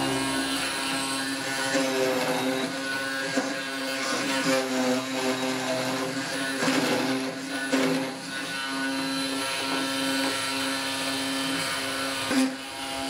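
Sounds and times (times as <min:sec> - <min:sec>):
mortising machine motor humming: 0:00.0 - 0:08.0
chisel biting into wood: 0:00.0 - 0:12.6.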